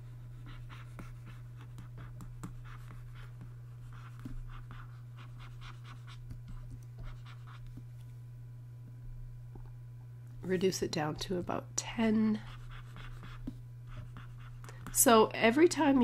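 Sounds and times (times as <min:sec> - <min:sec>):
stylus scratching on tablet: 0:00.0 - 0:07.8, 0:12.3 - 0:15.1
steady low hum: 0:00.0 - 0:16.0.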